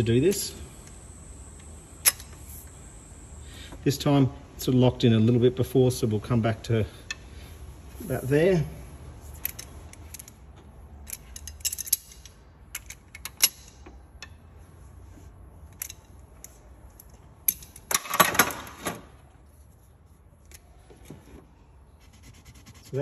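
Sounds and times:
insects buzzing: 0.0s - 3.9s
metal socket clicks and clinks: 11.0s - 14.4s.

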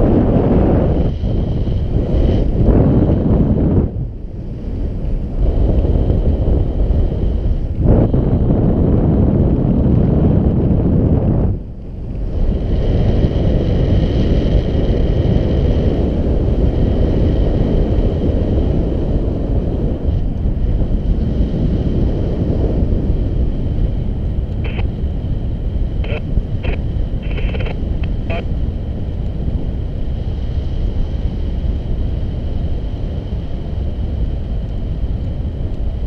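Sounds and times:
wind buffeting microphone: 0.0s - 36.0s.

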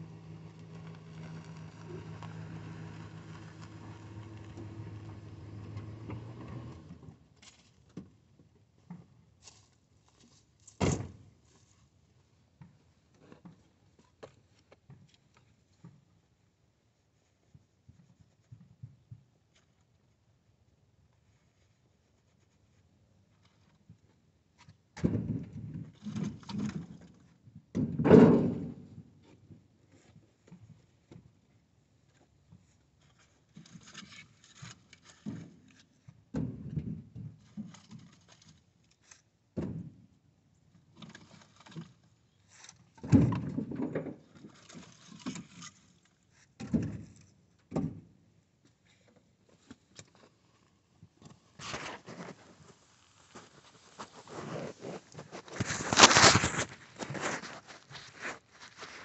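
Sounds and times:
wood scraping and rustling: 0.0s - 7.8s, 51.2s - 59.0s
logs thunking on pile: 27.8s - 28.8s, 43.0s - 45.5s, 54.1s - 59.0s.

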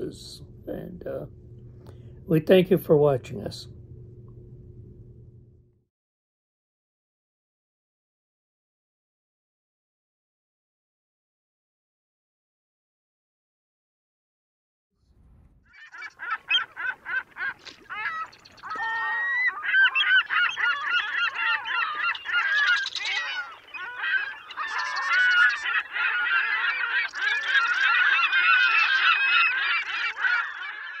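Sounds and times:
birds honking calls: 15.7s - 31.0s.

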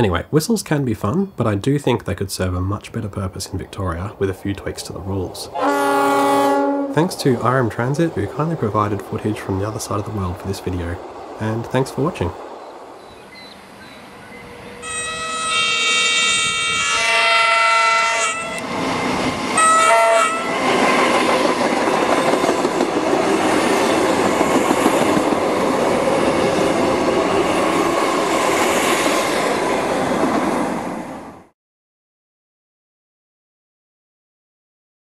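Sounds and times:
train passing with rail noise: 1.4s - 31.5s
train air horn: 5.6s - 7.0s, 14.4s - 18.6s, 19.6s - 21.2s.

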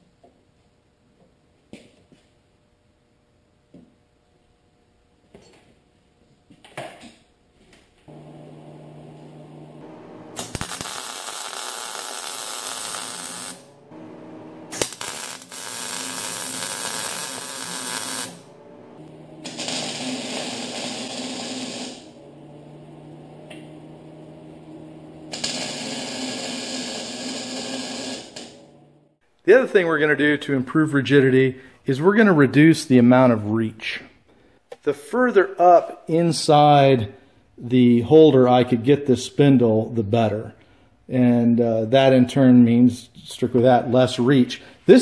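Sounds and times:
electric arc welding: 8.1s - 22.2s, 25.3s - 28.7s
steady machine hum: 8.1s - 29.2s.

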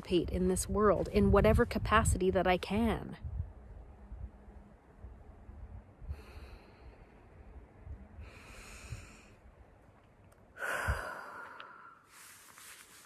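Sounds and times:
low rumble: 0.0s - 11.2s
woman breathing deeply: 6.0s - 9.6s, 10.5s - 12.7s.

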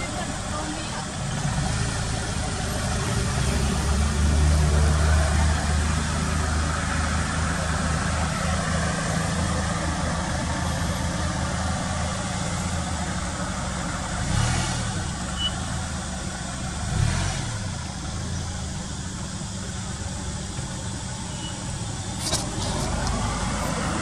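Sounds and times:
vehicle engine running: 0.0s - 24.0s
outdoor hiss: 5.7s - 24.0s.

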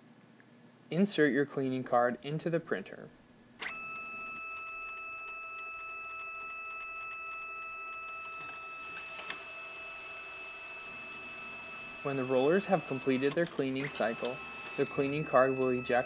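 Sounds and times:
printer click: 3.6s - 7.3s, 8.0s - 16.0s
printer roller motor whining: 3.6s - 16.0s.

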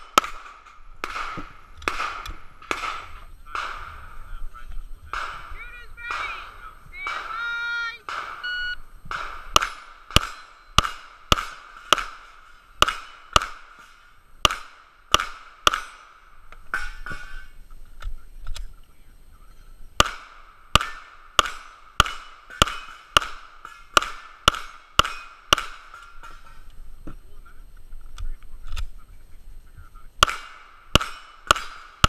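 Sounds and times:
rapid pistol fire: 0.0s - 4.2s, 5.0s - 7.4s, 8.0s - 16.9s, 20.0s - 26.4s, 30.2s - 32.0s
steel plate ringing: 5.1s - 17.6s, 20.0s - 26.7s, 30.2s - 32.0s.

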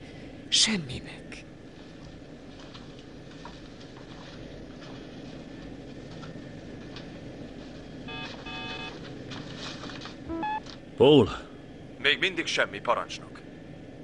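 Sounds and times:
low electronic hum: 1.5s - 11.0s
computer bleeps: 8.1s - 8.9s, 10.3s - 10.6s.

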